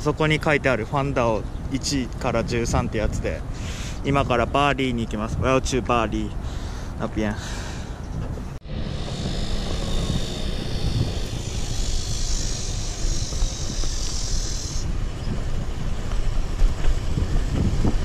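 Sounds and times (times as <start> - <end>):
wind buffeting microphone: 0.2 - 18.0
steady high hiss: 8.7 - 16.6.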